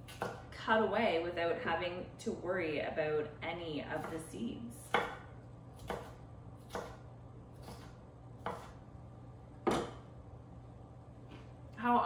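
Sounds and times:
knife chopping on wooden board: 0.0s - 0.5s, 4.9s - 7.0s, 7.6s - 8.8s, 9.6s - 10.1s.

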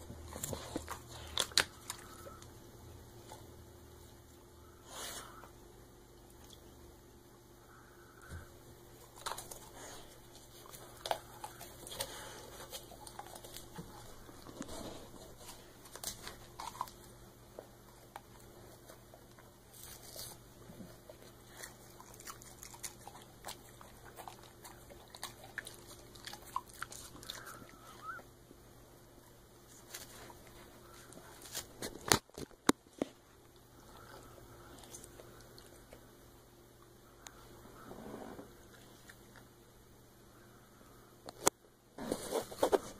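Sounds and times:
dog chewing sponge: 17.9s - 27.7s.

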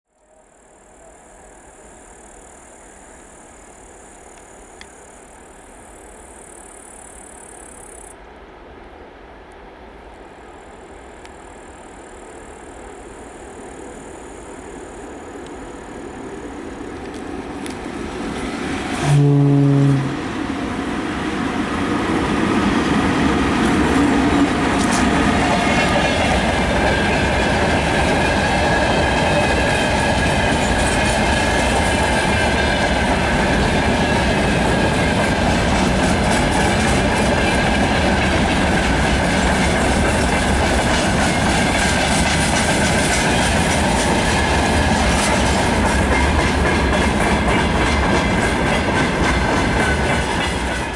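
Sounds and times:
freight train rumbling past: 11.6s - 50.9s
low train horn blast: 18.8s - 20.5s
wheels clacking over rail joints: 20.8s - 50.9s.

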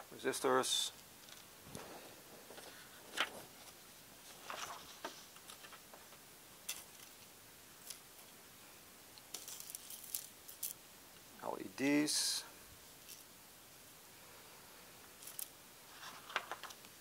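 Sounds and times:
faint clicks and rustles: 0.9s - 8.4s, 9.1s - 10.8s, 15.0s - 17.0s.

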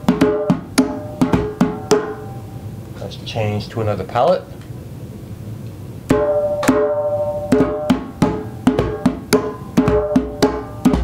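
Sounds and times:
djembe drum struck by hand: 0.0s - 2.4s, 6.1s - 11.0s.

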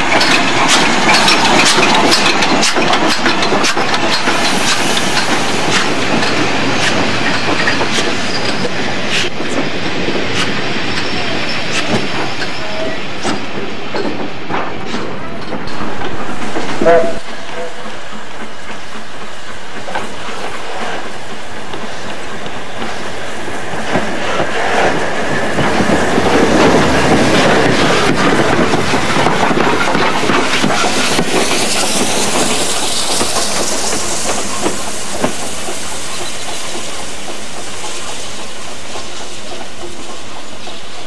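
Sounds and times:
passing locomotive: 0.0s - 41.0s
train wheels clicking on rails: 0.0s - 41.0s
high hiss: 30.5s - 41.0s.

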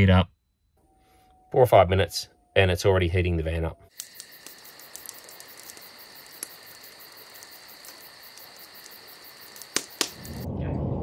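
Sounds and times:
night insects chirping: 3.7s - 10.5s
wood fire crackling: 3.9s - 10.6s.

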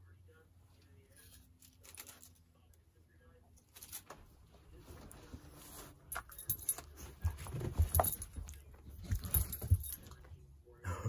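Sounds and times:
handling knocks and rubbing: 3.8s - 10.3s.

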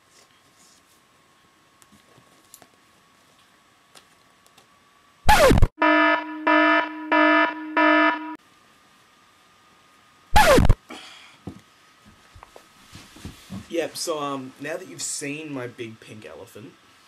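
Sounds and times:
harsh censor buzzer: 5.3s - 8.4s, 10.4s - 10.8s.

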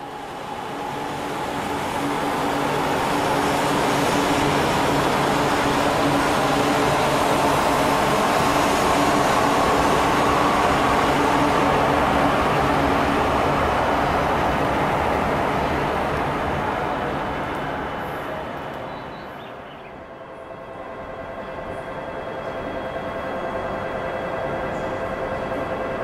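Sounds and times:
train running noise: 0.0s - 26.0s.

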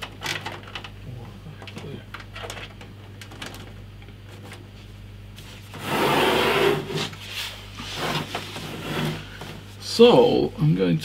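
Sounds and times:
computer case sliding on desk: 5.8s - 7.1s, 7.8s - 9.6s.

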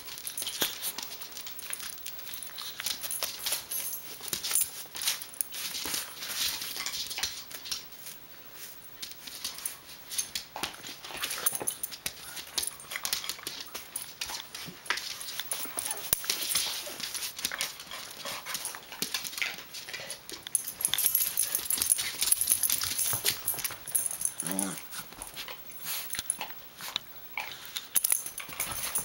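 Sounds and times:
claws clicking on tile floor: 0.0s - 29.0s.

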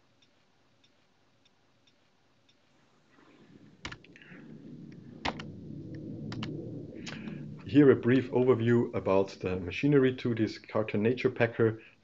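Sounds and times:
low room hum: 0.0s - 12.0s
sharp clicks: 3.6s - 7.3s.

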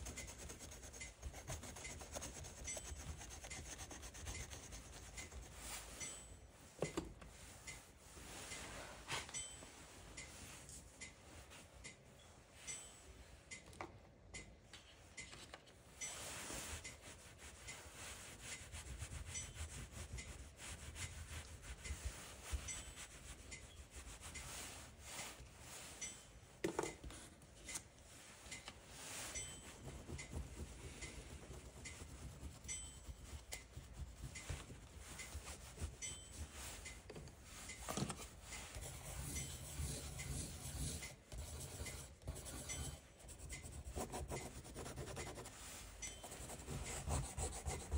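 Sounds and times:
pastel scribbling on paper: 0.0s - 5.7s, 16.8s - 24.8s, 29.7s - 36.4s, 38.6s - 47.9s.

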